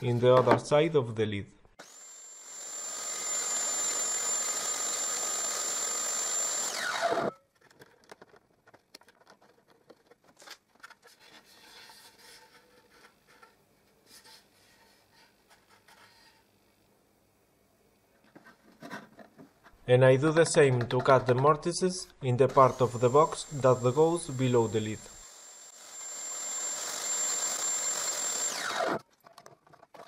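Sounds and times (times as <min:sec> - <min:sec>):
table saw whining: 0:01.8 - 0:07.4, 0:22.2 - 0:29.0.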